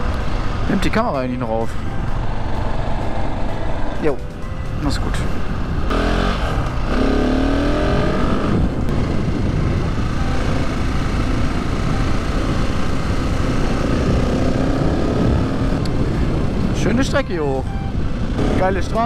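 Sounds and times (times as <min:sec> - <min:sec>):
wind rush: 0:04.6 - 0:19.0
motorcycle engine accelerating: 0:05.4 - 0:19.0.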